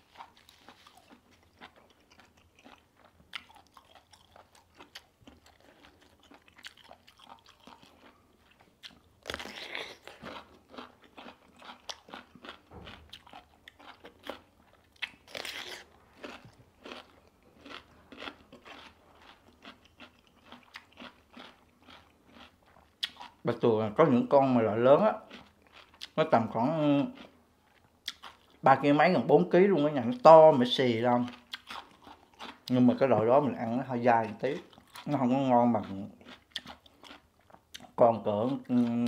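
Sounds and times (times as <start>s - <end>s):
soft chewing clicks: 0.2s - 23.4s, 35.8s - 39.0s
crisp crunches biting cucumber: 8.8s - 23.4s.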